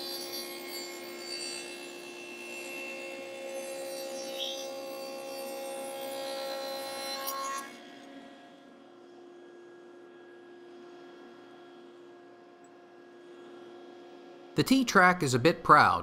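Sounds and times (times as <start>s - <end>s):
table saw cutting wood: 0.0s - 8.4s
table saw running: 0.0s - 8.4s.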